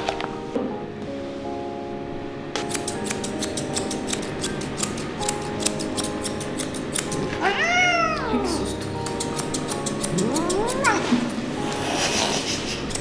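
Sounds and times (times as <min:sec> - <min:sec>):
scissors snipping fur: 0:02.6 - 0:07.4, 0:08.4 - 0:13.0
cat meowing: 0:07.4 - 0:08.7, 0:10.2 - 0:11.1.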